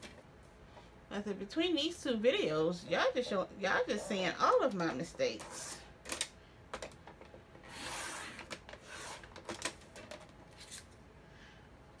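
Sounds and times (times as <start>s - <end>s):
card scraping across paper trimmer: 7.6s - 9.3s.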